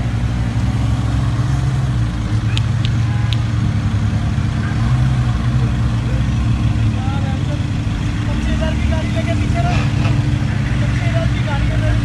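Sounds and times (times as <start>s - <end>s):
sports car engines running: 0.0s - 12.0s.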